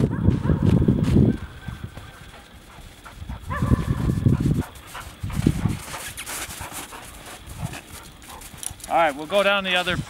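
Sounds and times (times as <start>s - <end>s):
dog panting: 2.3s - 8.9s.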